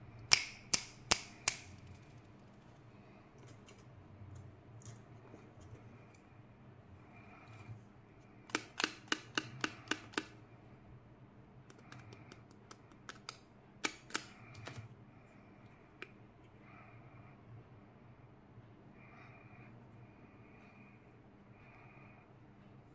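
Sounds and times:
plastic capsules clicking: 8.5s - 10.4s, 11.7s - 14.8s.

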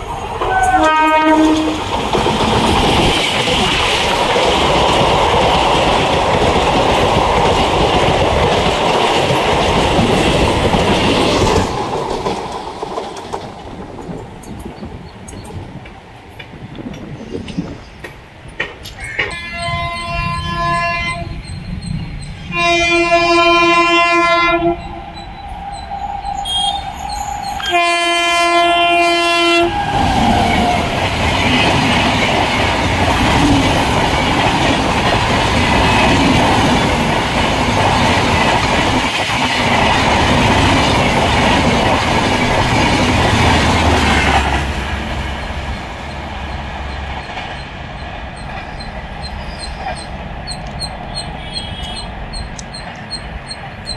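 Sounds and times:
train wheels rattling on track: 0.0s - 53.9s
train horn blasts: 0.5s - 1.8s, 19.0s - 21.4s, 22.4s - 25.3s, 26.3s - 30.0s, 51.4s - 52.1s.

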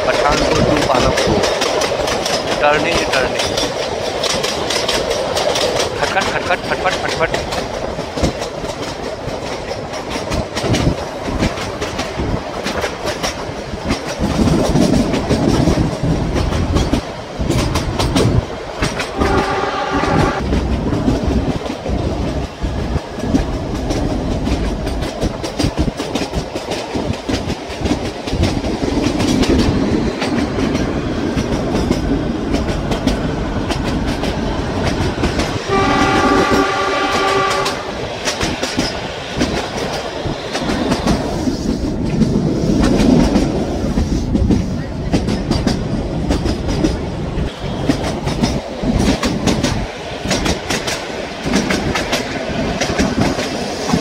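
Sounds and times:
train wheels clattering over rail joints: 0.0s - 54.0s
wind rush: 0.0s - 54.0s
train horn: 19.2s - 20.4s, 35.7s - 38.0s.

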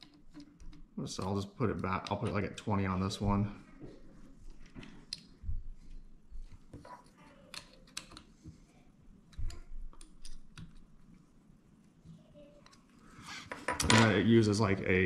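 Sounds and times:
small metal and plastic clicks: 7.5s - 8.3s.

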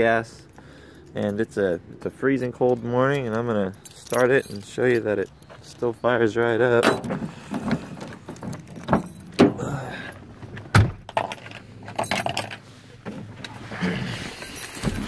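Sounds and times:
keys rattling in door lock: 0.5s - 6.0s, 6.8s - 10.2s, 11.1s - 12.6s, 14.3s - 15.0s
truck door unlatching and opening: 6.8s - 9.8s, 10.5s - 11.2s
person climbing into cab: 6.9s - 15.0s.

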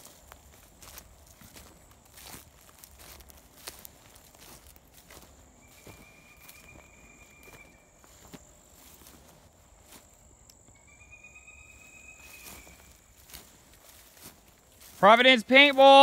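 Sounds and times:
soft ticks and crunches: 0.0s - 10.8s, 12.4s - 16.0s
lower insect trill: 9.8s - 13.4s.

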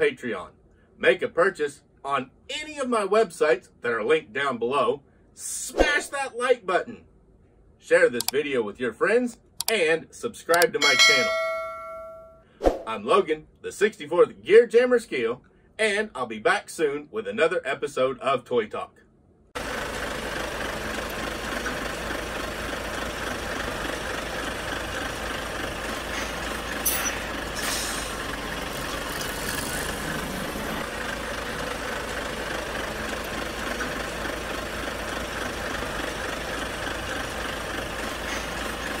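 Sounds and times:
heavy vehicle engine idling: 19.6s - 39.0s
short hisses: 27.0s - 28.3s.

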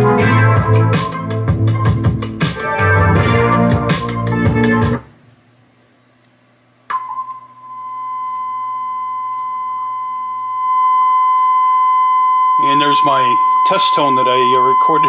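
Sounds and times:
music playing: 0.0s - 5.1s
steady test tone: 6.9s - 15.0s.

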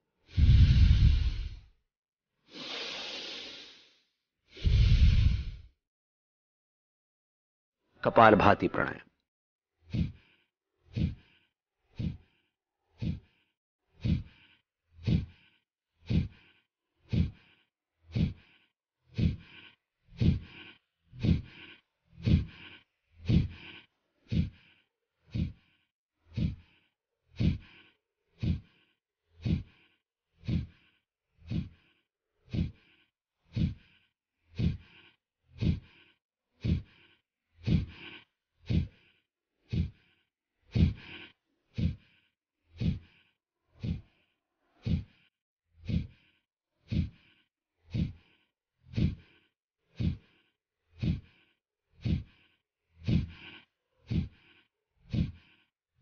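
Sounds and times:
forceful nasal exhalations: 0.2s - 1.7s, 2.5s - 5.7s, 33.5s - 42.2s.

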